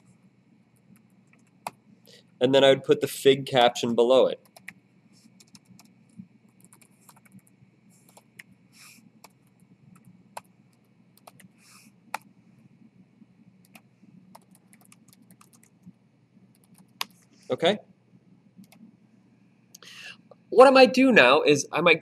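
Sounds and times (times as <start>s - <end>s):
keyboard typing: 0.8s - 1.8s, 4.4s - 8.6s, 9.2s - 12.3s, 13.6s - 17.2s, 18.6s - 18.9s.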